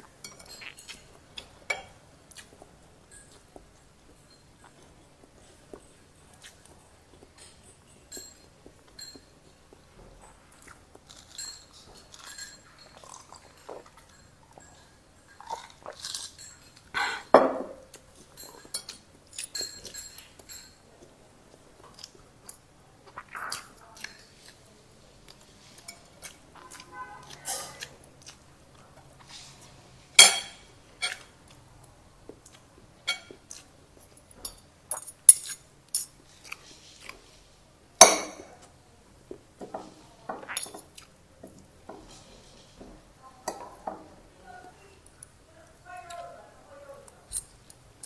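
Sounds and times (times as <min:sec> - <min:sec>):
cutlery clinking on ceramic plates: 0:07.4 - 0:09.4, 0:11.1 - 0:20.8, 0:33.1 - 0:33.4.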